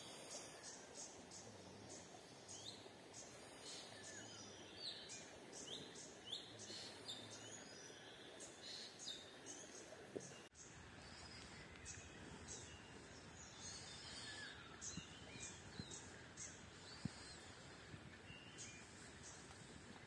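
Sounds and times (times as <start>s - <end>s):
birds chirping: 0.0s - 20.0s
low even hiss: 0.0s - 20.0s.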